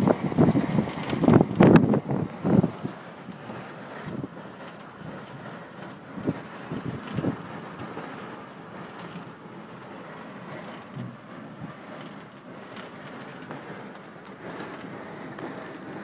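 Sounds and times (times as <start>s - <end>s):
low thumps from gusts: 0.0s - 8.2s.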